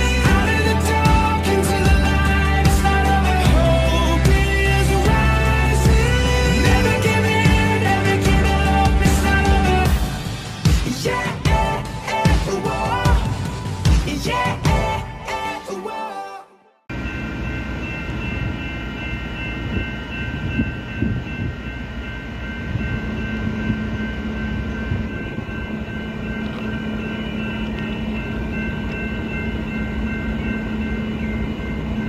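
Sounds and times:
distant train rumble: 0.0 - 15.0, 16.9 - 32.0
steady high tones: 0.0 - 16.3.

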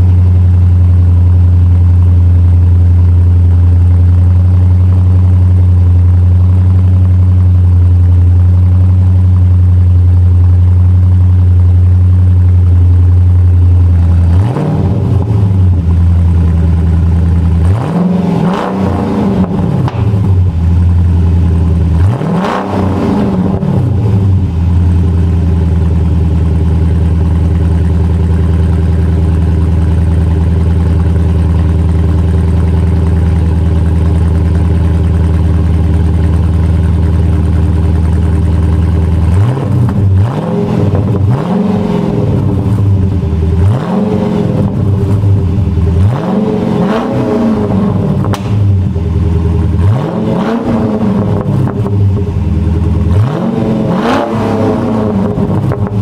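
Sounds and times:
car engine idling: 0.0 - 56.0
car engine revving: 12.0 - 56.0.

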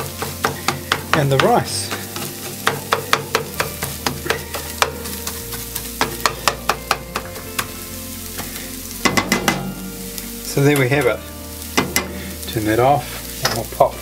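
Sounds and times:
spatula tapping frying pan: 0.0 - 10.0, 10.7 - 12.4
egg sizzling: 0.0 - 14.0.

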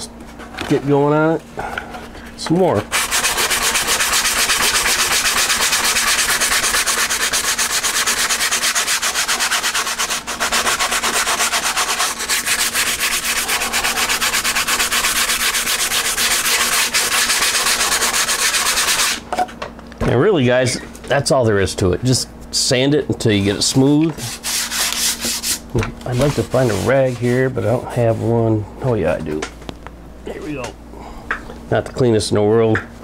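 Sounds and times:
sandpaper rubbing back and forth: 2.9 - 19.2, 23.6 - 28.5.

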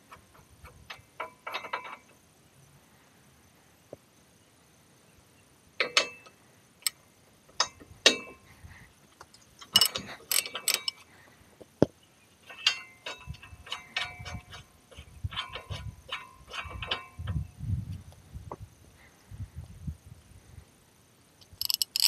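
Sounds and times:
ratchet clicking: 9.7 - 11.0, 21.4 - 22.0.

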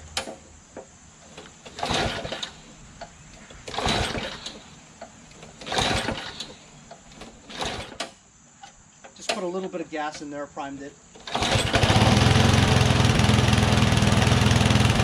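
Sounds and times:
recoil starter rope pulled: 1.2 - 8.2, 11.2 - 15.0
small engine turning over: 1.3 - 2.7, 3.6 - 4.7, 5.4 - 8.2, 11.2 - 15.0.

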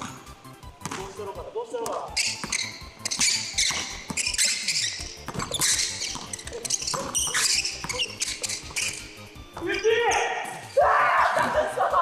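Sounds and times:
basketball bouncing: 0.0 - 1.2, 2.2 - 9.8
shoes squeaking on hardwood: 2.1 - 10.8.

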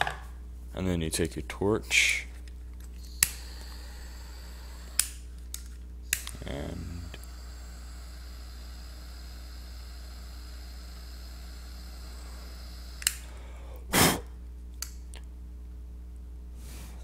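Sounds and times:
jet torch hissing: 3.0 - 5.2, 6.1 - 14.3
torch switch click: 3.2 - 3.8, 4.8 - 5.2, 6.1 - 7.4, 12.9 - 13.3
puff of breath: 13.2 - 14.3.

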